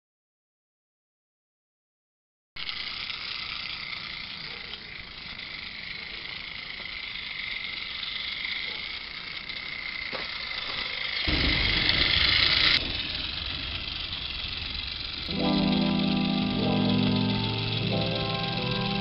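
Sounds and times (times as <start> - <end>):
steady hiss: 2.8 - 19.0
thin high tone: 13.5 - 19.0.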